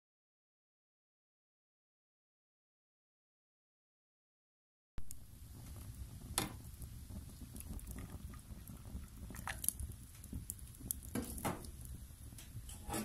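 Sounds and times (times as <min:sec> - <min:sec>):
wood fire crackling: 0:05.0 - 0:13.0.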